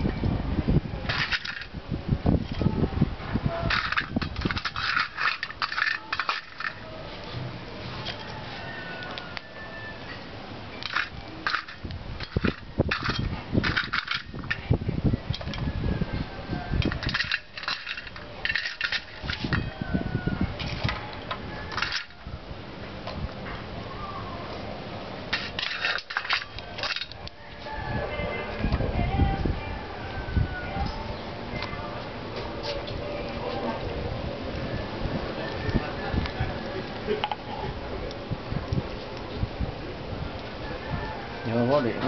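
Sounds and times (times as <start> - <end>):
charcoal clinking and clattering: 1.0 - 1.7, 3.6 - 6.9, 10.8 - 14.7, 16.8 - 19.8, 21.6 - 22.2, 25.3 - 27.4.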